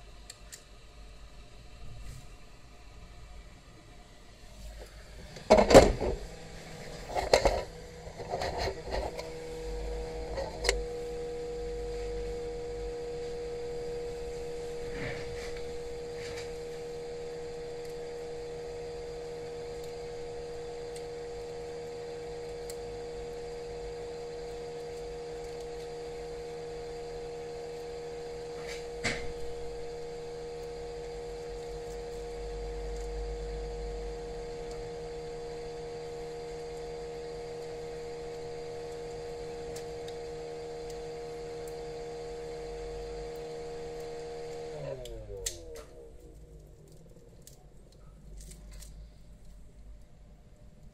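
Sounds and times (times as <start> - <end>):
steady electric hum: 0.0 - 50.9.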